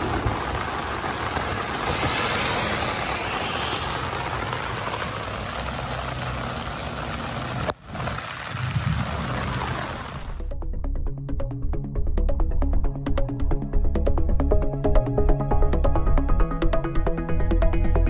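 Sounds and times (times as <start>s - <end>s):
water gushing over rocks: 0.0s - 10.5s
music: 10.3s - 18.0s.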